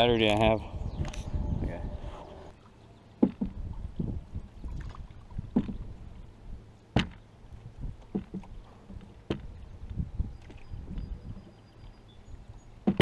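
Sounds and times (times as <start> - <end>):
water rumbling on hull: 0.0 - 13.0
paddle strokes: 2.0 - 6.2, 6.9 - 12.0.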